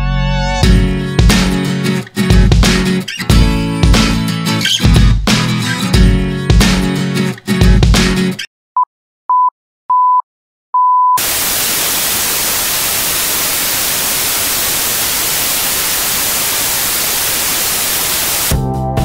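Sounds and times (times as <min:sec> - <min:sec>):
white noise static hiss: 0:11.2 - 0:18.5.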